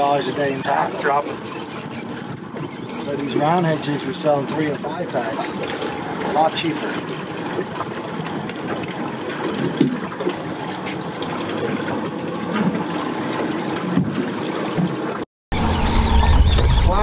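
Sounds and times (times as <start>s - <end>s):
water lapping against boat: 0.0s - 17.0s.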